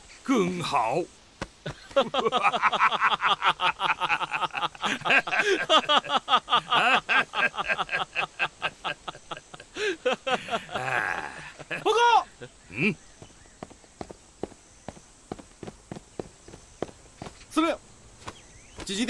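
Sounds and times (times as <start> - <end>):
men laughing: 1.6 - 13.1.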